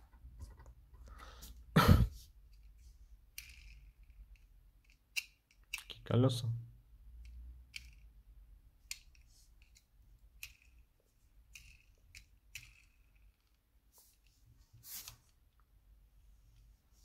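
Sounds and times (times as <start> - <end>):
toy car wheels clicking: 3.3 - 5.9, 7.2 - 8.2, 8.8 - 13.6.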